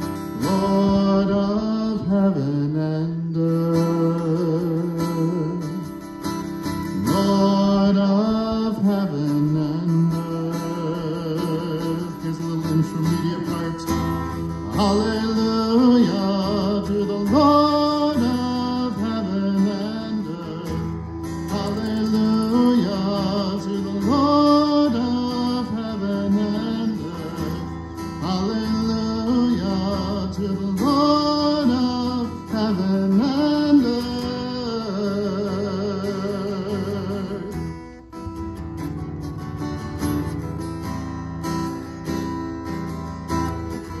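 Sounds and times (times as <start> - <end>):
acoustic guitar strumming: 0.0 - 44.0
person singing: 6.9 - 37.6.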